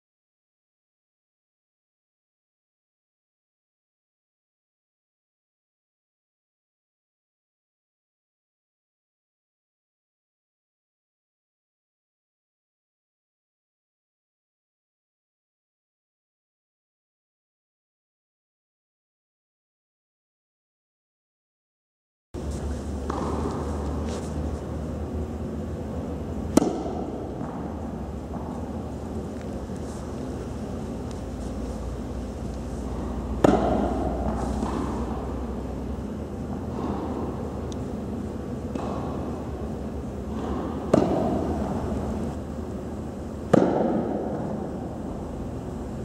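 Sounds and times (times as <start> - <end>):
racket striking tennis ball: 22.4 - 42.4, 43.4 - 44.8
background hiss: 22.4 - 46.0
low hum: 22.4 - 46.0.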